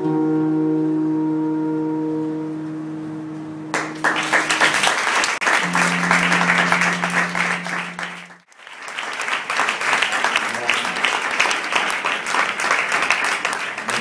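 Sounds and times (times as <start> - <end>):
live band final chord: 0.0 - 8.4
audience applause: 3.8 - 14.0
low steady tone: 5.6 - 8.4.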